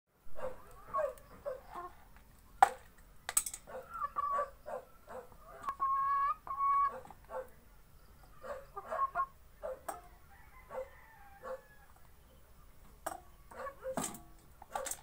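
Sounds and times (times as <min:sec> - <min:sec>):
hen clucking: 0:00.4 - 0:02.2, 0:03.6 - 0:07.5, 0:08.1 - 0:14.9.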